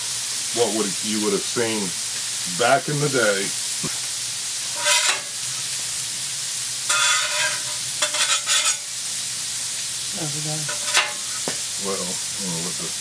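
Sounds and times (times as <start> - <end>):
burgers and onions sizzling: 0.0 - 13.0
metal spatula scraping griddle: 4.7 - 5.5, 6.9 - 9.0, 10.7 - 11.4.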